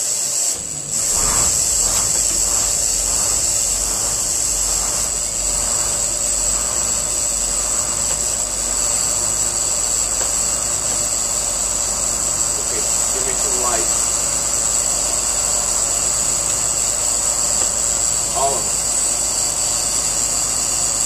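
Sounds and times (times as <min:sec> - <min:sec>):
steady high hiss: 0:00.0 - 0:21.0
bus engine starting and idling: 0:00.4 - 0:12.8.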